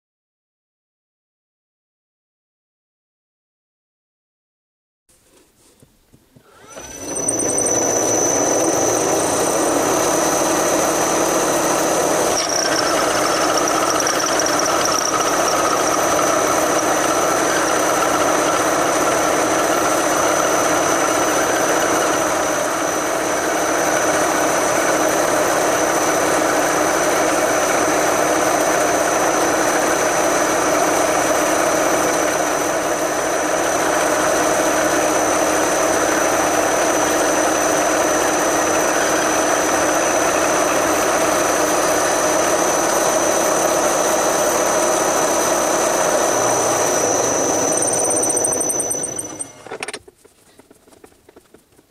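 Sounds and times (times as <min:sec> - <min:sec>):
milling machine grinding metal: 0:06.4 - 0:23.0, 0:35.3 - 0:50.0
high machine whine: 0:06.4 - 0:26.1, 0:29.0 - 0:50.0.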